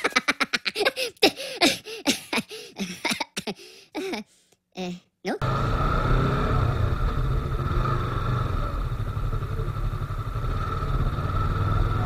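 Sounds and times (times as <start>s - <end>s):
motorcycle engine running: 5.4s - 12.0s.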